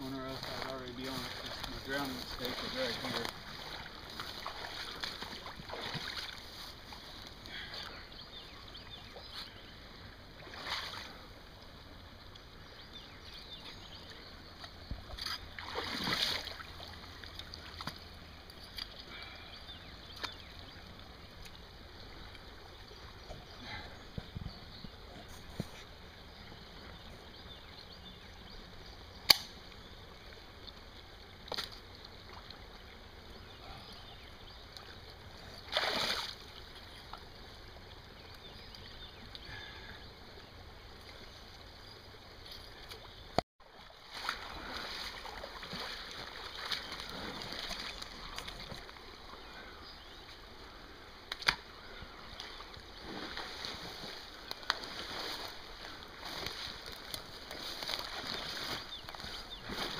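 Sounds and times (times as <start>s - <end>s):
water sloshing: 0.0s - 9.6s, 10.4s - 11.3s, 14.6s - 26.1s, 30.2s - 39.9s, 42.4s - 50.3s, 51.2s - 59.9s
water splash: 2.3s - 6.4s, 15.2s - 18.0s, 35.7s - 36.6s.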